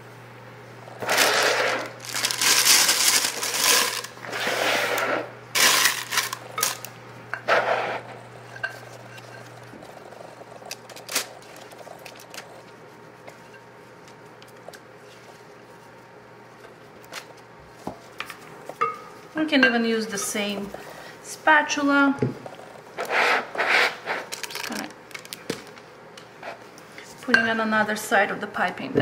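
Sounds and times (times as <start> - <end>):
plastic bag crinkling: 1.0 - 4.5, 5.6 - 6.9, 10.6 - 12.6, 24.2 - 25.9.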